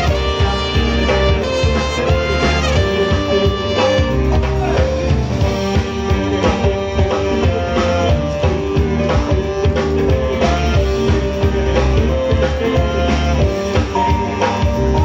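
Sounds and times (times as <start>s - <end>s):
drum kit beat: 0.0s - 15.0s
electric guitar: 0.0s - 15.0s
keyboards: 0.0s - 15.0s
person singing: 0.0s - 15.0s
saxophones and trumpet: 0.0s - 15.0s.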